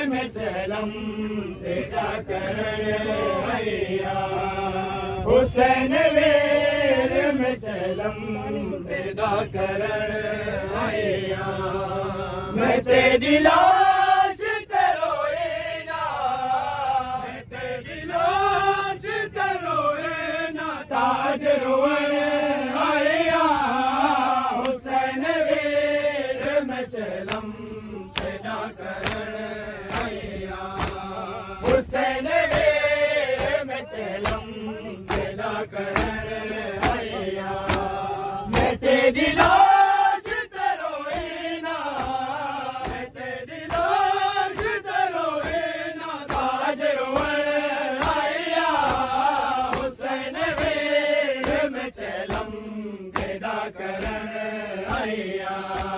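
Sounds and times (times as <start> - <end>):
voices chanting together: 0.0 - 55.9
hands slapping chests: 28.1 - 34.5, 35.1 - 36.2, 36.8 - 38.8, 39.4 - 55.9.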